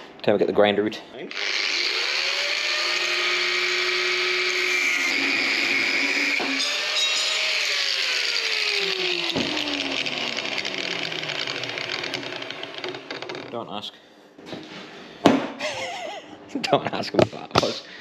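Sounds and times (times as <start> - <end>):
angle grinder cutting steel: 1.3 - 13.1.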